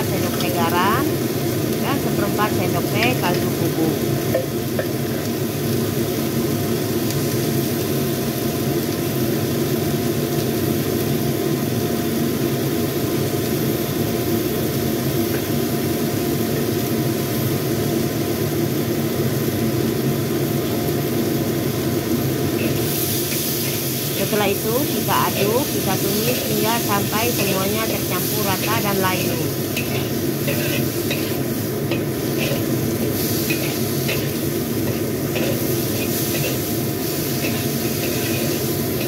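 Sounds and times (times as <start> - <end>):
stove hissing: 0.0 - 39.0
extractor fan drone: 15.8 - 39.0
metal spatula in wok: 22.6 - 39.0.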